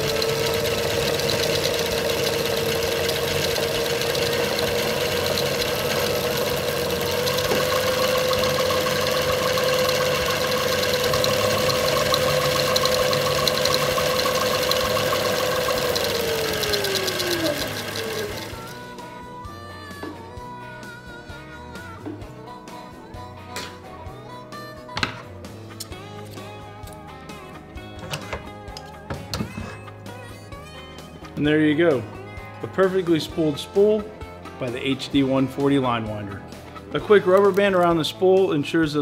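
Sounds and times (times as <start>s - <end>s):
motor and gearbox whine: 0.0s - 18.9s.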